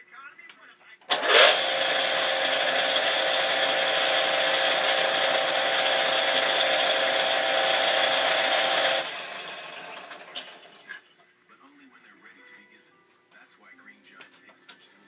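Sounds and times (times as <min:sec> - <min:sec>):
power drill motor whine: 0:01.1 - 0:10.8.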